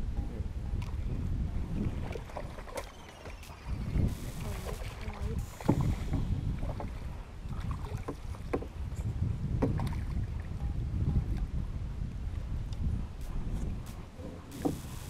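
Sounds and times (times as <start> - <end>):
wind on microphone: 0.0 - 15.0
fishing gear knocking on boat: 8.0 - 8.8, 9.5 - 10.0.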